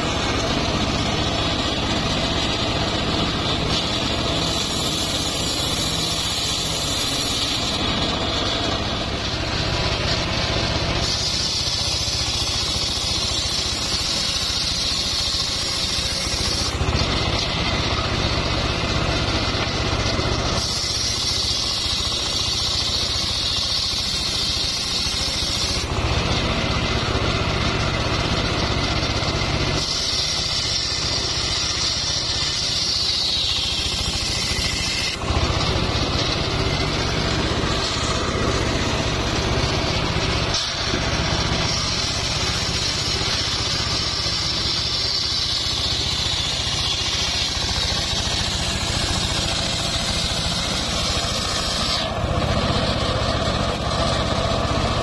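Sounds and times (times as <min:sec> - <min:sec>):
circular saw blade whine cutting wood: 0:00.0 - 0:55.0.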